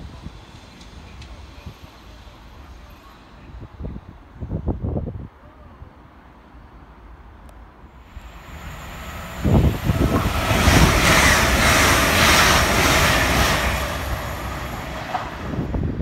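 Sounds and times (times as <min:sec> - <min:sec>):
passenger train rushing past: 0:07.8 - 0:16.0.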